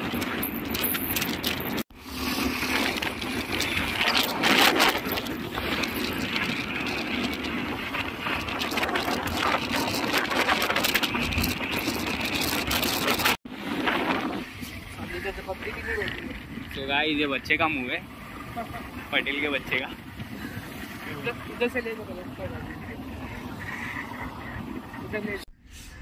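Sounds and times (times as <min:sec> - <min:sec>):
road and wind noise: 0:00.0 - 0:26.0.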